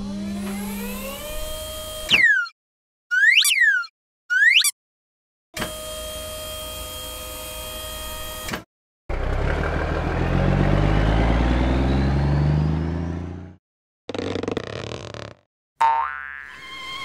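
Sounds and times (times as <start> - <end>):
truck engine accelerating: 9.1 - 13.6.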